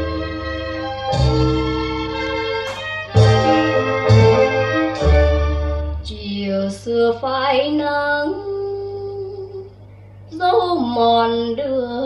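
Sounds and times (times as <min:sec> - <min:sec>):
low bass line: 0:00.0 - 0:06.2
instrumental backing: 0:00.0 - 0:06.5
woman singing: 0:06.0 - 0:12.0.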